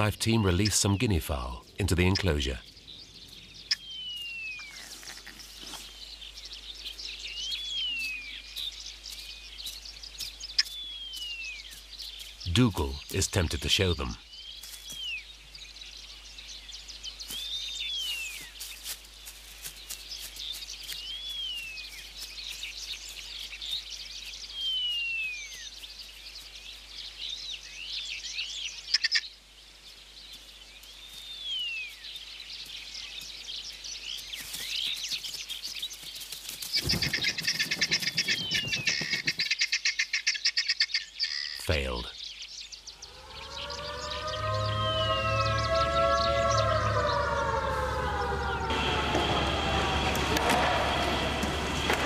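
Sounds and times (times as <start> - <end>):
bird chirps: 0.0 - 18.9, 19.7 - 29.4, 30.3 - 50.0
fast rattling bird call: 36.7 - 41.6.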